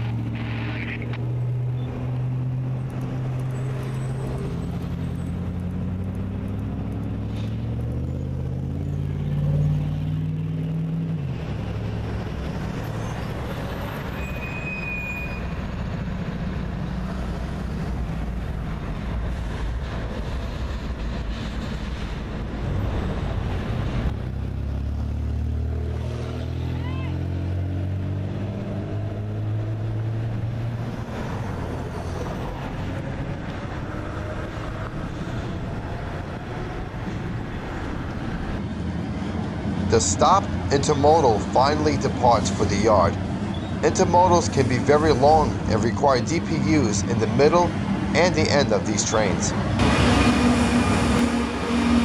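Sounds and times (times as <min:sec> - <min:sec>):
diesel locomotive engines humming: 0:00.0 - 0:52.0
train rolling by rumble: 0:12.2 - 0:24.6, 0:49.5 - 0:52.0.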